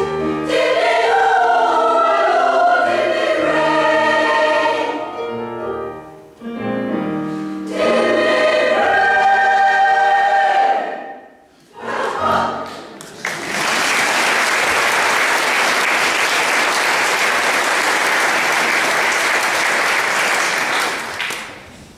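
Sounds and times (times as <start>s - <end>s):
women's choir singing chord: 0.3s - 5.2s, 7.6s - 12.8s
audience applause: 13.1s - 21.6s.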